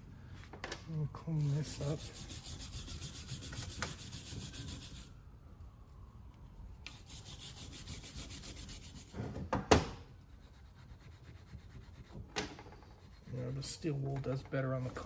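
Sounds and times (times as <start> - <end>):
steel wool scrubbing metal: 1.4 - 5.1.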